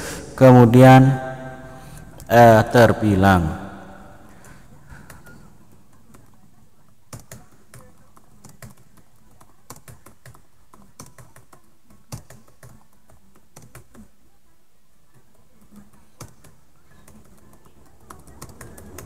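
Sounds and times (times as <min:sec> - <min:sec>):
typing on a keyboard: 0:07.1 - 0:14.1, 0:15.1 - 0:19.0.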